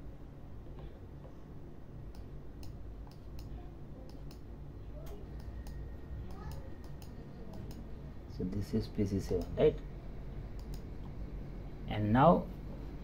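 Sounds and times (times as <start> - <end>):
steady low hum: 0.0 - 13.0
computer mouse clicking: 2.1 - 4.4, 5.4 - 7.9, 10.5 - 11.1.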